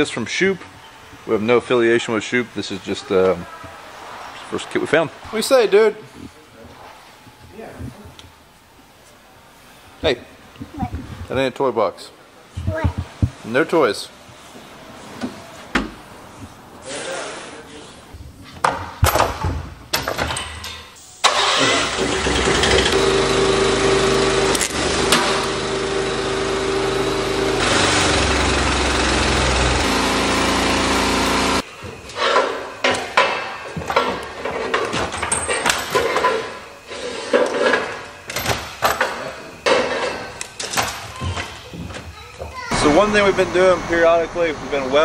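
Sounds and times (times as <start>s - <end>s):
engine running: 21.4s - 31.6s, 42.8s - 45.0s.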